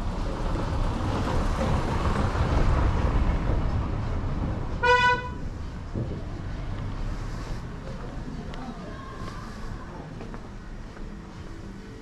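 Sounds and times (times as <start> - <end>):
car tyres rolling on stone paving: 0.0 - 4.8
car horn beep: 4.8 - 5.4.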